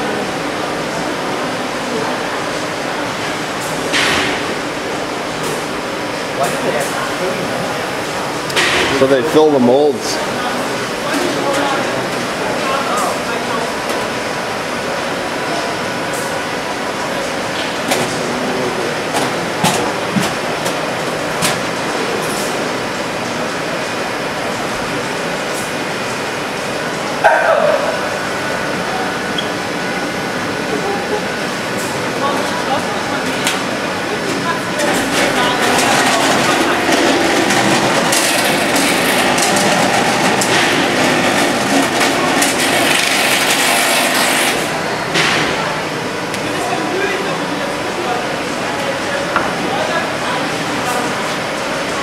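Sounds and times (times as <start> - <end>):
machine hum: 0.0 - 48.5
machinery clattering: 34.2 - 45.8.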